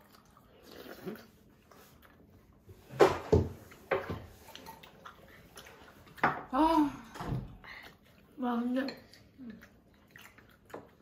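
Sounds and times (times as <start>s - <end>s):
wet slurps and mouth noises: 0.0s - 2.6s, 7.7s - 11.0s.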